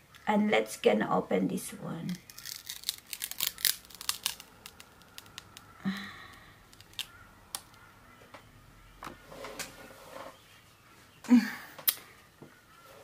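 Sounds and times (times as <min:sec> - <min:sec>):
handling compact packaging: 0:02.2 - 0:07.8.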